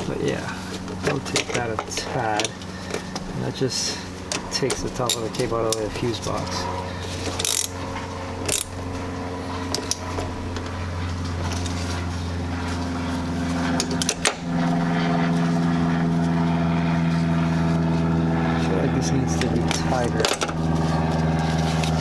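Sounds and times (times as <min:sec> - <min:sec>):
engine hum: 0:00.0 - 0:22.0
metal clicks of hand tools: 0:19.4 - 0:20.5.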